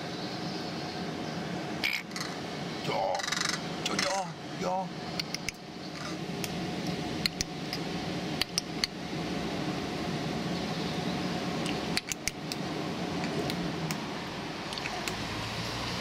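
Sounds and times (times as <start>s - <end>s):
machinery humming drone: 0.0s - 16.0s
sharp clicks: 5.2s - 5.6s, 7.2s - 7.8s, 11.6s - 12.6s.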